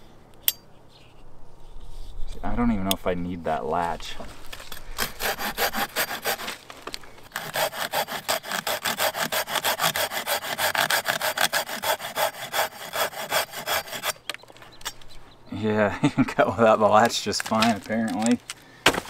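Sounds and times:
hand saw cutting branch: 4.9 - 6.6, 7.3 - 14.2.

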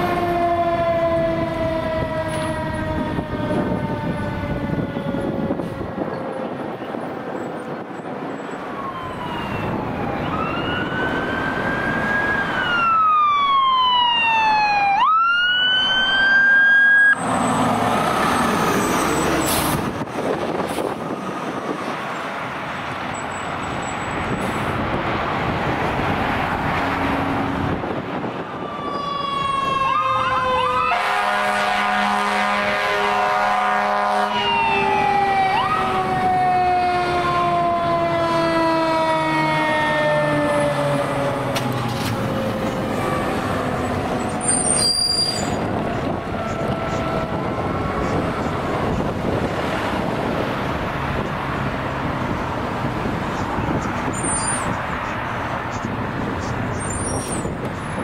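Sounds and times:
fire truck sirens wailing: 0.0 - 58.0
truck engine and road noise: 0.0 - 58.0
horn blast: 30.9 - 34.4.

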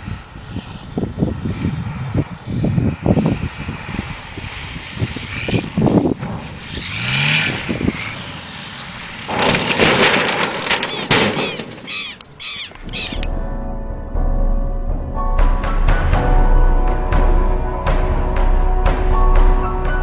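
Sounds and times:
wind buffeting microphone: 0.0 - 10.8
plane crashing and skidding: 0.0 - 12.2
propeller aircraft engine: 0.0 - 13.3.

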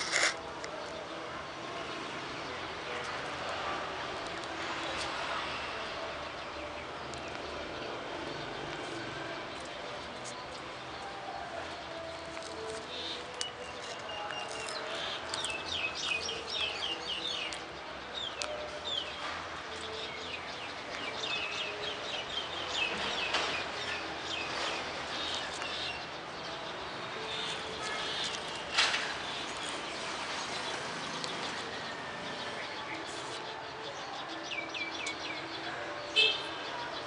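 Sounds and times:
tortoise crunching a leaf: 0.0 - 0.8, 12.2 - 17.6, 27.3 - 32.4
small birds chirping: 6.3 - 37.0.

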